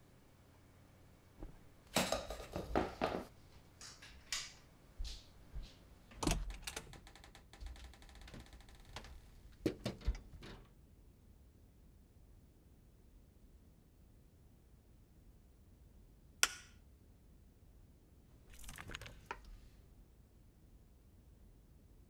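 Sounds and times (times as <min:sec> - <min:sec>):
rattle of clicks: 0:06.2 - 0:10.6.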